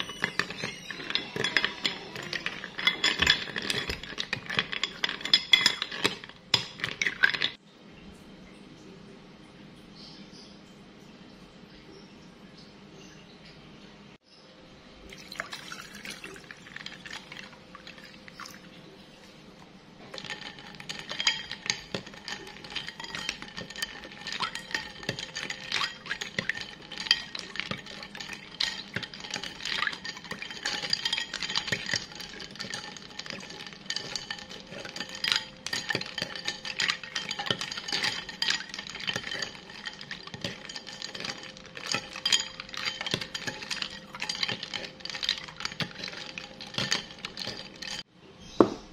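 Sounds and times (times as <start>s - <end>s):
spoon stirring ice clinking: 0.0s - 7.6s, 15.1s - 48.1s
water pouring into glass bowl: 15.1s - 19.4s, 20.1s - 48.0s.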